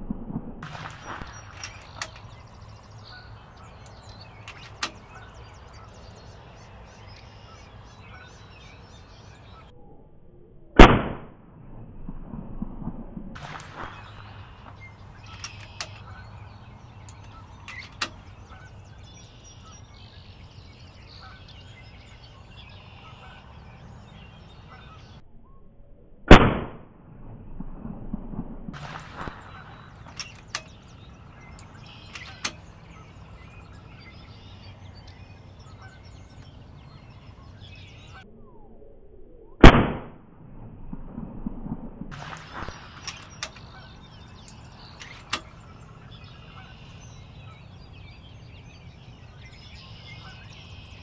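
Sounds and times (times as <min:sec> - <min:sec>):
faint clicks: 0:00.6 - 0:07.3, 0:13.4 - 0:18.8, 0:28.8 - 0:33.8, 0:42.2 - 0:46.7
air rifle shots: 0:10.8 - 0:11.3, 0:13.4 - 0:18.8, 0:26.3 - 0:26.9, 0:28.7 - 0:33.0, 0:39.6 - 0:40.2, 0:42.1 - 0:46.1.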